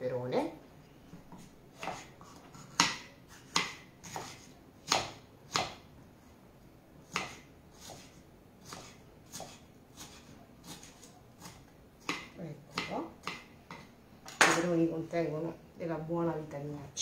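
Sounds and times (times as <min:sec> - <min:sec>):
knife chopping on wooden board: 0:01.4 - 0:05.8, 0:07.1 - 0:14.6.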